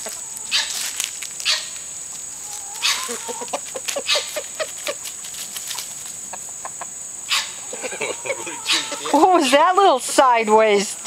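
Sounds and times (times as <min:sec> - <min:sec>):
chickens clucking: 0:00.0 - 0:10.8
rustling bursts: 0:03.8 - 0:06.2
high-pitched insect drone: 0:05.8 - 0:10.2.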